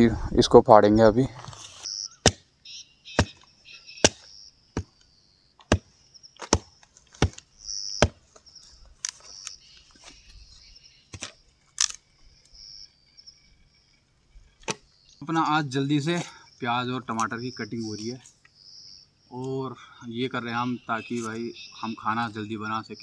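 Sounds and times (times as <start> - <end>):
machete chopping wood: 2.2 - 2.5, 3.2 - 3.4, 4.0 - 4.9, 5.6 - 7.4, 8.0 - 8.2.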